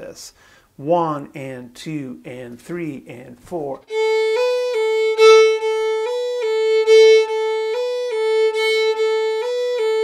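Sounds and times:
fiddle playing shuffle rhythm: 3.8s - 10.0s.

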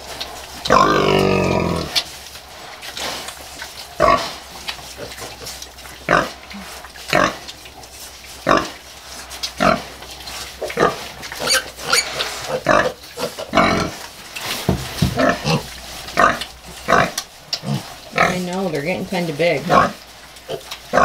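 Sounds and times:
pig grunting: 0.7s - 2.0s, 4.0s - 7.4s, 9.6s - 10.0s, 10.6s - 14.0s, 15.1s - 18.7s.

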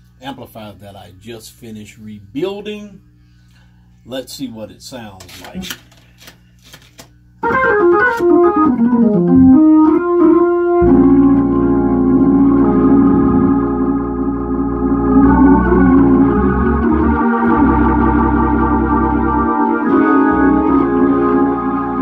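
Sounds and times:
organ playing sustained chords: 7.4s - 22.0s.

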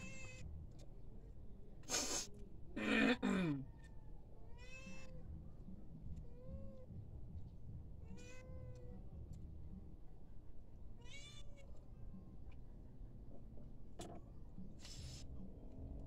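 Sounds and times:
cat meowing: 4.5s - 5.2s, 11.0s - 11.7s.

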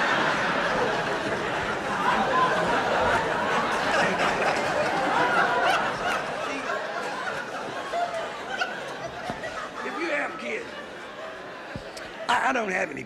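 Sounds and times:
audience laughing: 0.0s - 13.0s.

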